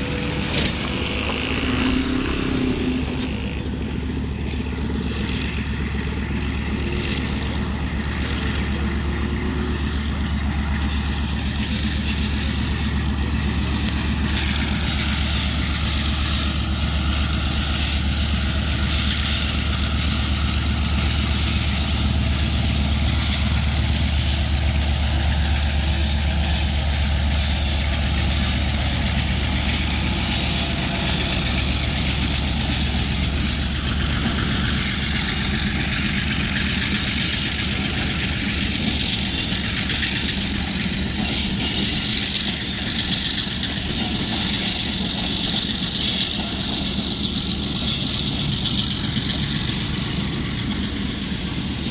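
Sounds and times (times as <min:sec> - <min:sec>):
passenger train passing: 0:00.0 - 0:51.9
motorcycle idling: 0:19.5 - 0:51.9.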